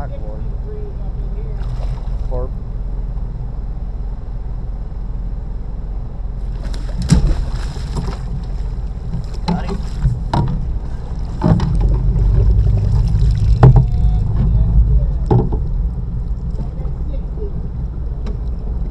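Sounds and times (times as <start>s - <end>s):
boat motor drone: 0.0s - 18.9s.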